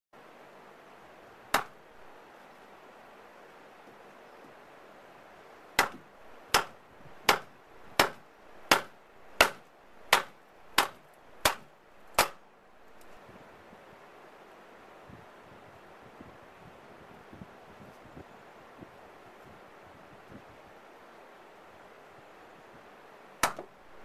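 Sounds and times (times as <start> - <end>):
rubber maul striking hatchet: 1.5 - 1.8, 5.8 - 12.4, 23.4 - 23.8.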